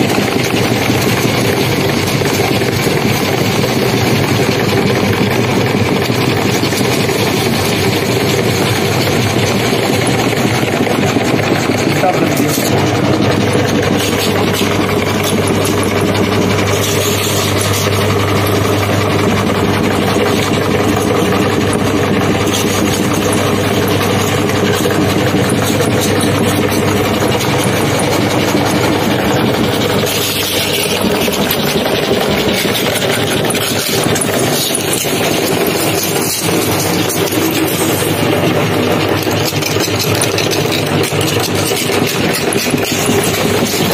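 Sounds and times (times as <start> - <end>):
chips crunching in grinder: 0.0 - 43.9
electric meat grinder humming: 0.0 - 43.9.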